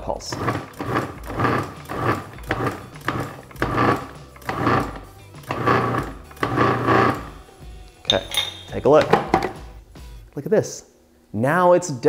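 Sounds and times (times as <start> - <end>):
food processor motor pulsing: 0.2 - 7.4.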